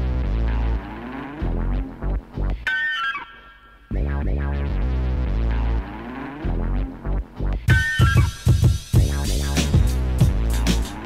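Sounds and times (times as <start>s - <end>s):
deep bass hits: 6.5s - 11.0s.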